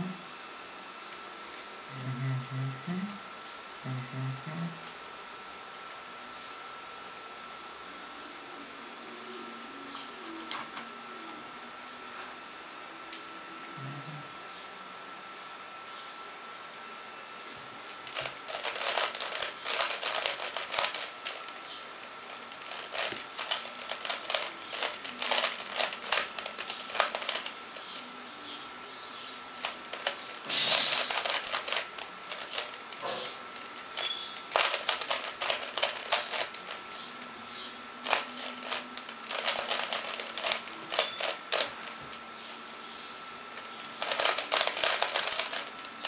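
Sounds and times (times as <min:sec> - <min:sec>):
puzzle cube clicking turns: 0:18.2 - 0:21.4, 0:22.3 - 0:27.5, 0:29.6 - 0:33.0, 0:33.6 - 0:36.8, 0:38.0 - 0:42.0, 0:43.6 - 0:45.8.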